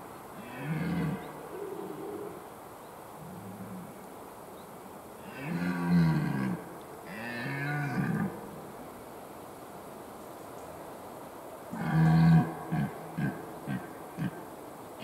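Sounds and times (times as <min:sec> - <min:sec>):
deer stag roaring: 0:11.8 - 0:14.4.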